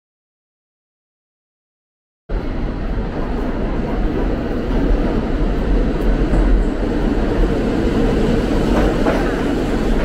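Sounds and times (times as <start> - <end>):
subway train wheels rumbling: 2.3 - 10.0.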